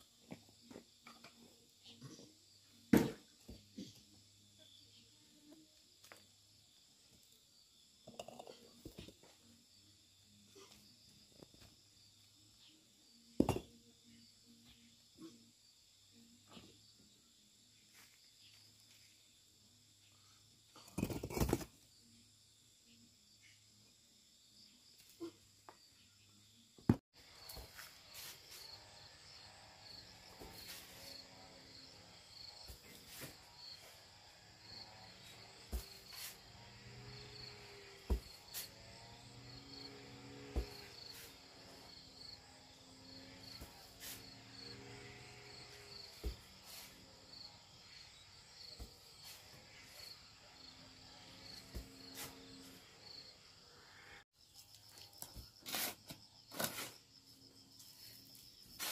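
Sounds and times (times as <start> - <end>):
crickets trilling: 21.0 - 58.9.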